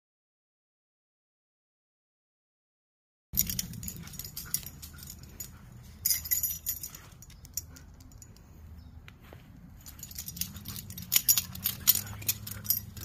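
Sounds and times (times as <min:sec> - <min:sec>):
collar tags jingling: 0:03.4 - 0:08.9, 0:09.5 - 0:13.0.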